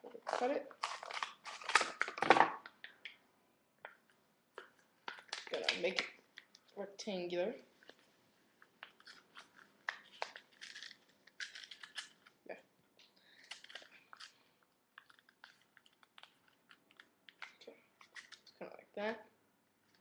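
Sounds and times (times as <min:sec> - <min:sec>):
paper crinkling and crunching: 0:00.2 - 0:02.6, 0:08.7 - 0:12.4, 0:13.4 - 0:14.4.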